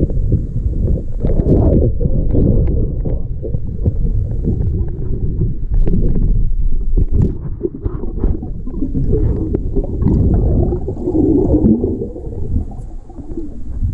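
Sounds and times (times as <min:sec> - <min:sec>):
low underwater rumble: 0:00.0 - 0:13.9
water gurgle: 0:00.0 - 0:13.9
small underwater clicks and pops: 0:00.9 - 0:11.7.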